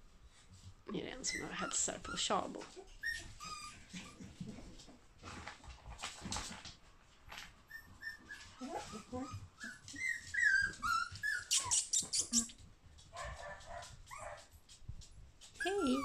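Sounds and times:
puppies whimpering: 1.2s - 4.5s, 7.7s - 12.6s, 15.6s - 16.0s.

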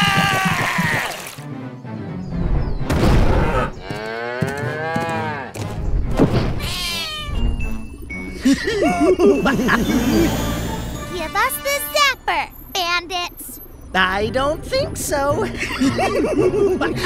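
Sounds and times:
background music: 0.0s - 12.6s, 13.9s - 17.0s
high-pitched animal cry: 6.6s - 7.5s.

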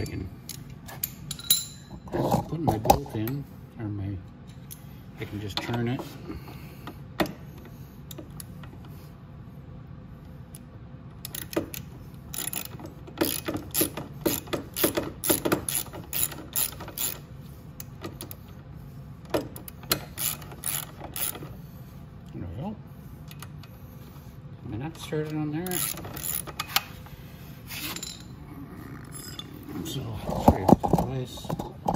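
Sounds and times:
tools tapping against metal: 0.5s - 1.9s.

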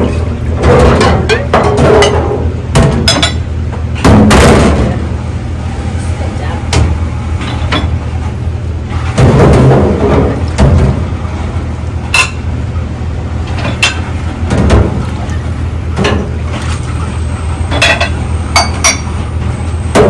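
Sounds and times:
dishes clinking in a sink: 0.0s - 3.4s, 12.1s - 12.4s, 17.7s - 19.2s
steady low hum: 0.0s - 20.0s.

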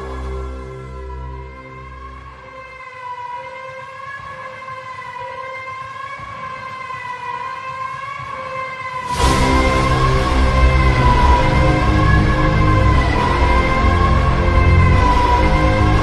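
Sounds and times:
heavy pulsing music: 0.0s - 16.0s
siren-like wail: 0.0s - 16.0s
loud hit: 9.0s - 16.0s.

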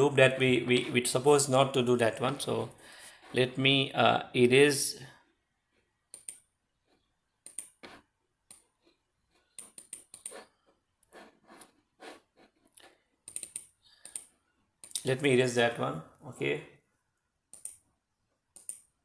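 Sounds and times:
computer mouse clicking: 6.1s - 6.5s, 7.4s - 8.7s, 9.4s - 10.5s, 13.2s - 15.1s, 17.5s - 17.8s, 18.5s - 18.9s.

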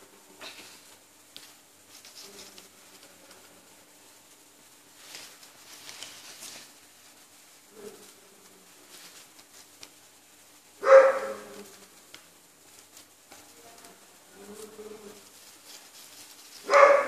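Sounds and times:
dog barking: 10.8s - 11.6s, 16.6s - 17.0s.

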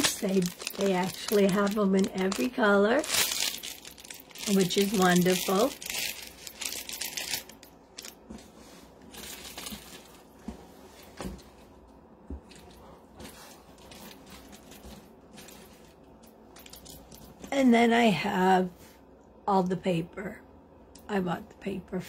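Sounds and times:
plastic packaging crinkling: 0.0s - 8.4s, 9.0s - 10.4s, 12.5s - 17.5s.

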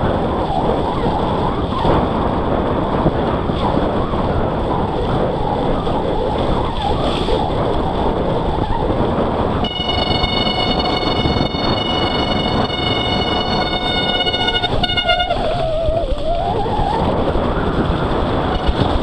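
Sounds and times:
bike tyres on wet trail: 0.0s - 19.0s
wind rush on microphone: 0.0s - 19.0s
disc brakes squealing: 9.7s - 17.0s.

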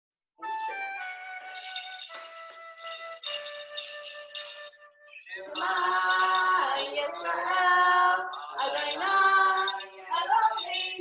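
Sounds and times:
woman singing slow melody: 5.4s - 11.0s.

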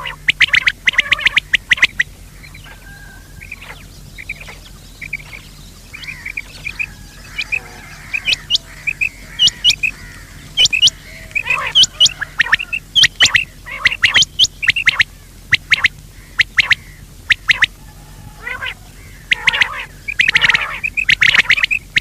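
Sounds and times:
quail calling: 0.0s - 22.0s
soft low chirps: 0.0s - 22.0s.

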